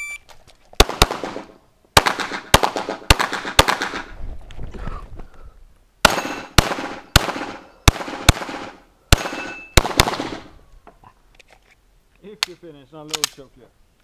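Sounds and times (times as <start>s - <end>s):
pistol shots echoing: 0.8s - 4.1s, 6.0s - 10.5s.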